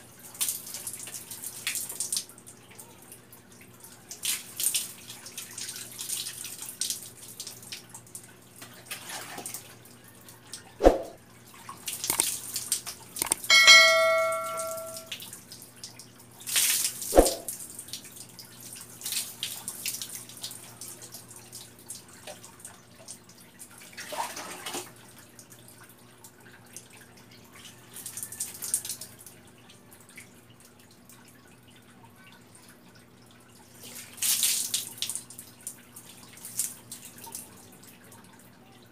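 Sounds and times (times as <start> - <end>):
water splashing over person bathing: 4.1 - 7.9, 8.7 - 9.7, 16.4 - 25.0, 33.7 - 37.4
ringing bell-like ding: 13.2 - 15.1.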